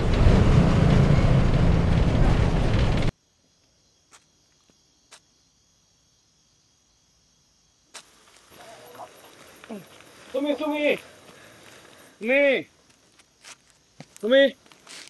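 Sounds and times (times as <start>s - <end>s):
bus engine and road rumble: 0.0s - 3.1s
crickets chirping: 3.1s - 15.0s.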